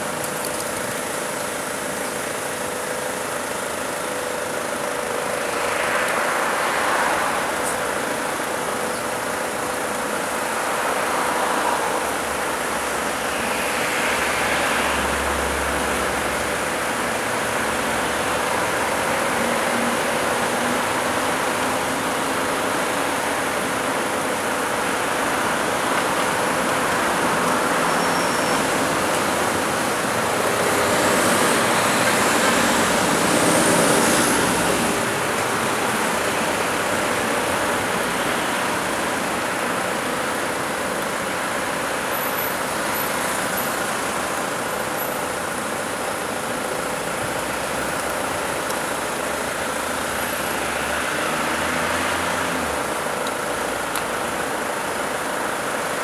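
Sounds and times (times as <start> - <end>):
hum of vehicle engines: 0.0 - 56.0
vehicles passing by: 0.0 - 56.0.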